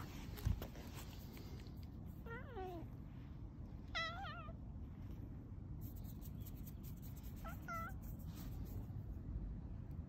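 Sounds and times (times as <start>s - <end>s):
cat meowing: 2.2s - 3.0s, 3.9s - 4.6s, 7.4s - 8.1s.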